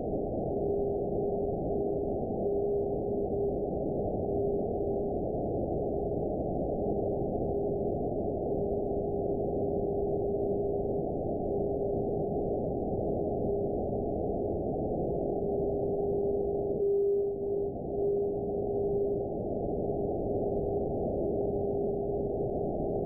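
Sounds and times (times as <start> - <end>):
steady radio tone: 15.3 - 23.0.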